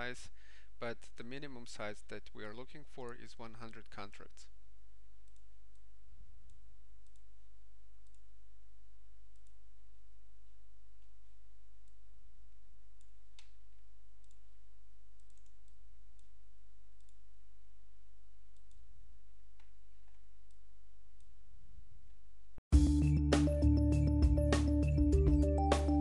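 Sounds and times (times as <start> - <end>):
computer mouse clicks: 6.5 - 7.3, 8.0 - 8.3, 9.3 - 9.6, 14.2 - 14.4, 15.2 - 16.3, 17.0 - 17.2, 18.5 - 18.9.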